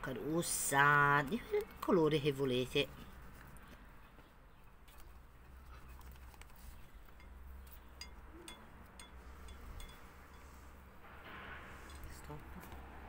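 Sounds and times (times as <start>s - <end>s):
low steady hum: 6.8s - 13.0s.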